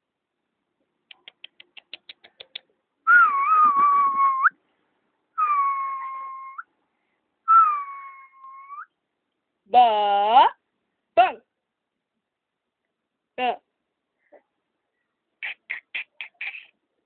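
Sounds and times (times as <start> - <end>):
long whistled notes: 3.1 - 4.5, 5.4 - 6.6.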